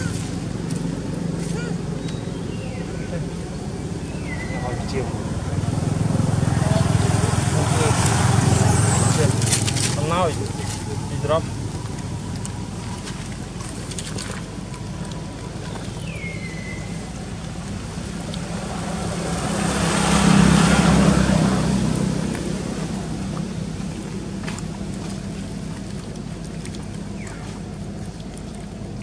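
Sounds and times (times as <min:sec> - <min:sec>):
low hum of traffic: 0:00.0 - 0:29.0
motorbike passing: 0:01.3 - 0:12.9, 0:16.6 - 0:23.8.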